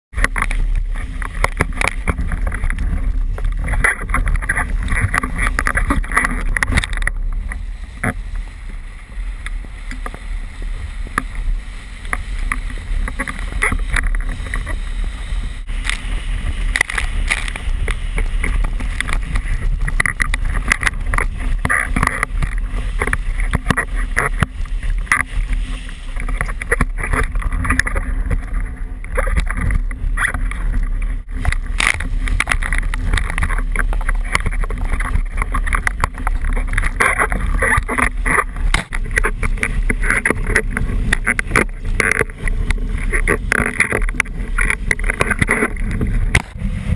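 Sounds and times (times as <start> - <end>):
wind buffeting microphone: 0.1 - 46.9
water rushing: 0.2 - 46.9
water slapping against board: 15.8 - 46.7.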